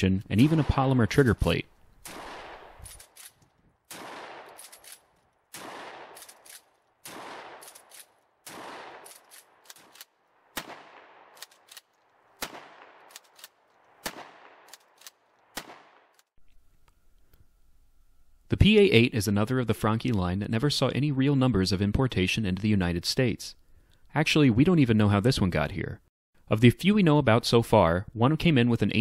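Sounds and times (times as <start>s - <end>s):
shotgun shots: 0.4s - 16.2s
shotgun slide racking: 2.8s - 3.5s, 4.4s - 5.2s, 6.1s - 6.8s, 7.6s - 8.2s, 9.0s - 10.1s, 11.4s - 12.0s.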